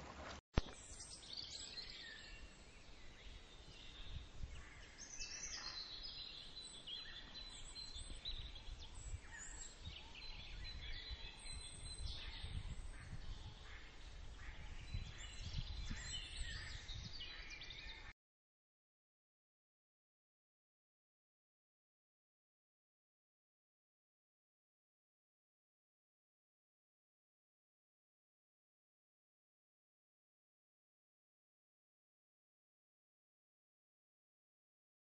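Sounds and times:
birds chirping: 0.0 - 18.1.

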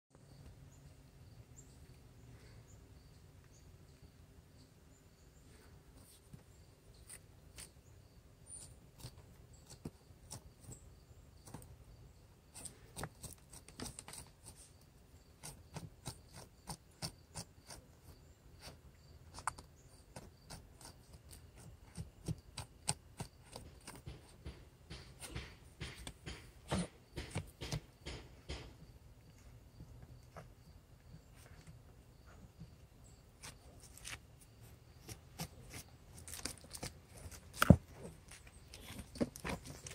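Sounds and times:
dog claws scraping in dirt: 33.4 - 39.9.

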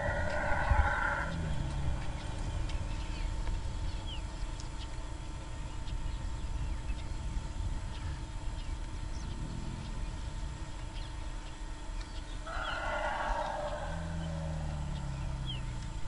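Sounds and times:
faint high chirps and ticks: 0.0 - 16.0
low rumbling field ambience: 0.0 - 16.0.

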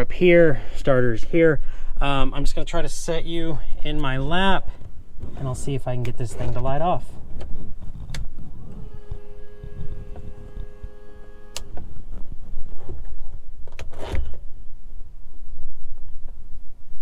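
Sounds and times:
low rumbling background: 2.9 - 12.7
electric pump whining: 8.4 - 12.2
switch clicks: 11.4 - 11.9.

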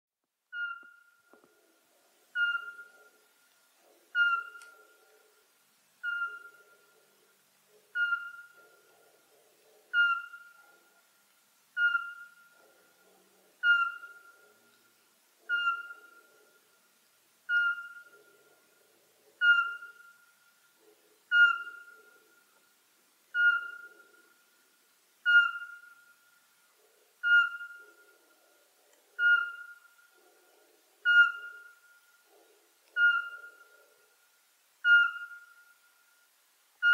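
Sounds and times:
owl whistled notes: 0.5 - 1.1, 2.4 - 3.0, 4.2 - 4.8, 6.0 - 6.7, 8.0 - 8.6, 9.9 - 10.6, 11.8 - 12.4, 13.6 - 14.3, 15.5 - 16.2, 17.5 - 18.2, 19.4 - 20.1, 21.3 - 22.0, 23.4 - 24.0, 25.2 - 26.0, 27.2 - 28.0, 29.2 - 29.9, 31.0 - 31.7, 33.0 - 33.6, 34.8 - 35.7.

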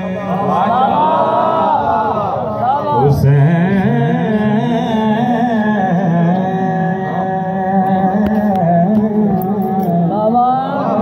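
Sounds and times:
man singing into a microphone: 0.0 - 0.9, 2.9 - 11.0.

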